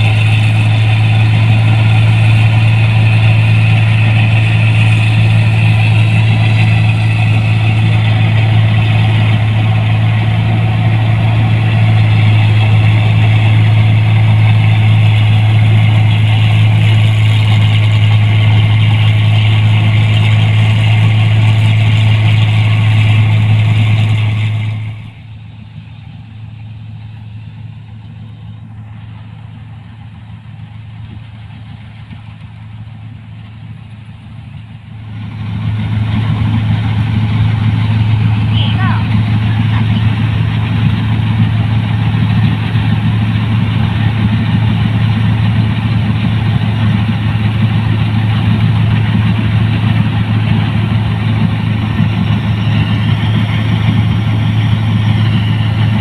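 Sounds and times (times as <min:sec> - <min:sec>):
combine harvester engine humming: 0:00.0 - 0:56.0.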